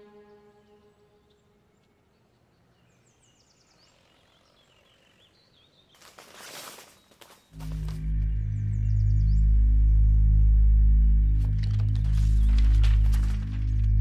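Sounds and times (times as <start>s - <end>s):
music: 0.0s - 1.1s, 7.6s - 14.0s.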